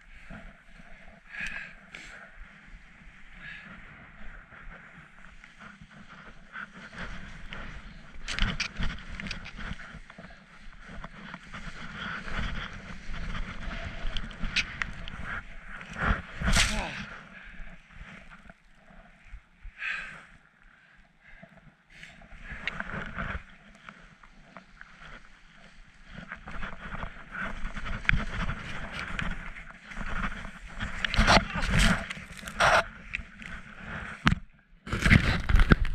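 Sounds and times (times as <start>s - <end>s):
wind on microphone: 2.5s - 18.3s, 24.7s - 35.9s.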